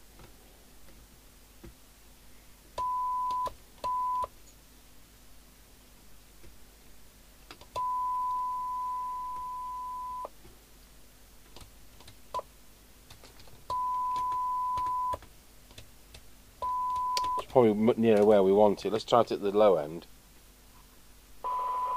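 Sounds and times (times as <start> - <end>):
small clicks: 16.9 - 18.3
radio test tone: 21.5 - 21.9.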